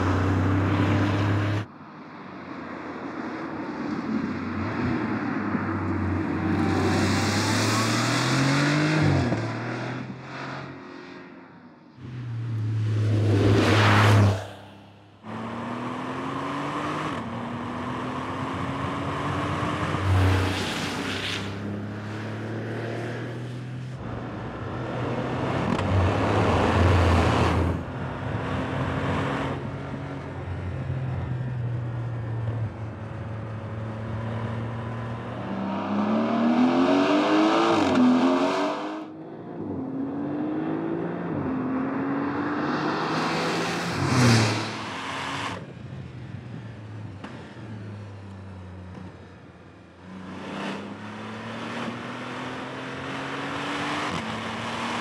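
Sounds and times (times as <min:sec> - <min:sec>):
car passing with rushing surges: 0:12.0 - 0:24.0, 0:42.2 - 0:45.7.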